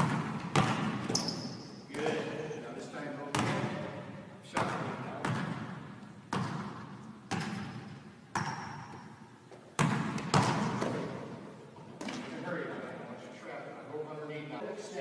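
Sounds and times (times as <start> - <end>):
basketball bouncing in a gym: 0.0 - 2.4, 3.2 - 12.3.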